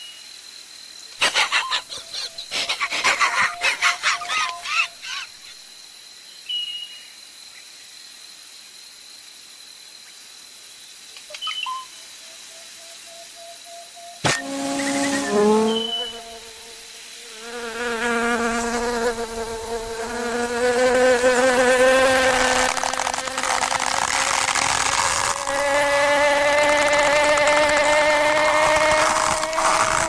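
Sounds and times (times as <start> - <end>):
cartoon insect buzz: 14.2 - 30.0.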